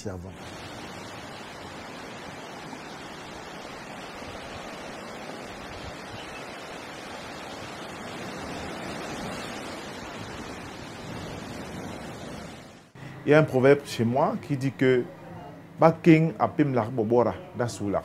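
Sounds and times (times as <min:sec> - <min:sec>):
water rushing in boat wake: 0:00.3 - 0:13.0.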